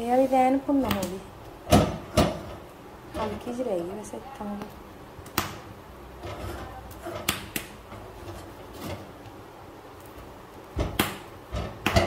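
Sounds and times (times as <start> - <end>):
gas burner rumble: 0.0 - 12.0
corn cobs knocking on metal grate: 10.8 - 12.0.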